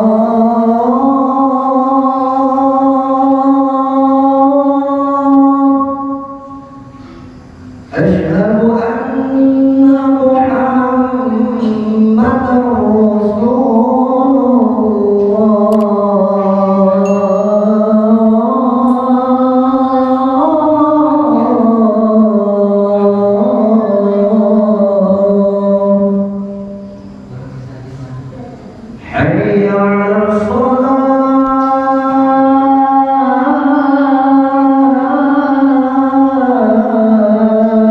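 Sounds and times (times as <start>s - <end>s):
man chanting into microphone: 0.0s - 6.9s, 7.8s - 37.9s.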